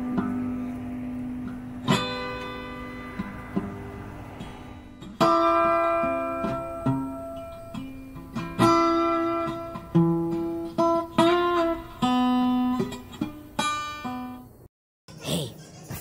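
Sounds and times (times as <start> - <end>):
guitar picking slow notes: 0.0 - 14.6.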